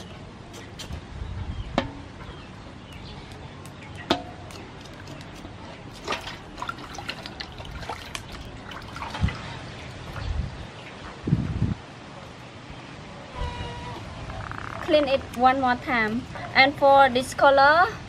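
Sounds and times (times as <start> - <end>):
water sloshing in metal basin: 4.1 - 10.3.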